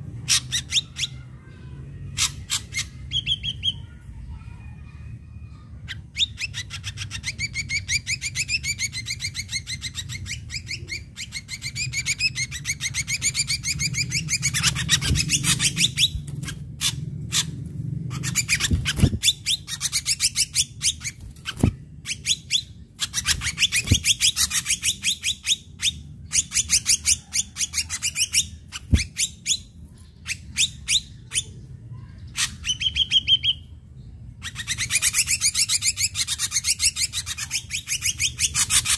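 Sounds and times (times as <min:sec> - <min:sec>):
bird chattering trills and whistles: 0:00.2 - 0:01.3, 0:02.0 - 0:04.0, 0:05.8 - 0:33.7, 0:34.4 - 0:38.9.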